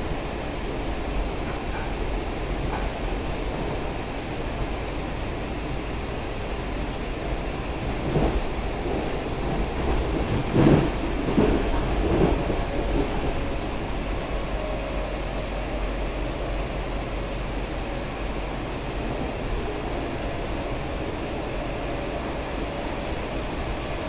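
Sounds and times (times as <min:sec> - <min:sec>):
train rumbling on track: 0:00.0 - 0:24.0
train thumps: 0:01.3 - 0:03.8, 0:07.9 - 0:13.9.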